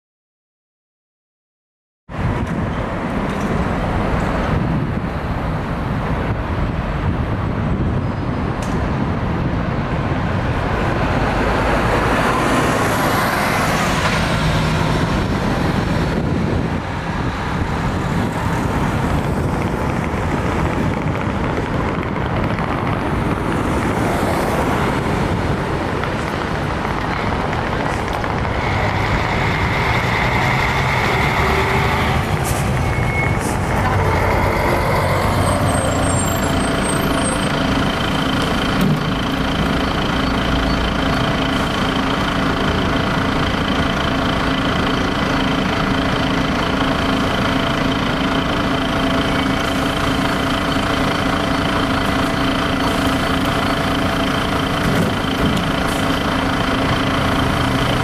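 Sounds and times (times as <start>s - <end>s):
buses and cars driving past: 2.1s - 58.0s
steady high tone: 28.6s - 54.7s.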